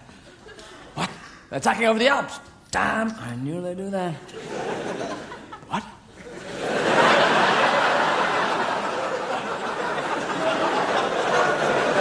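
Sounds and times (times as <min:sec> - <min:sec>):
large audience laughing: 0:04.3 - 0:12.0.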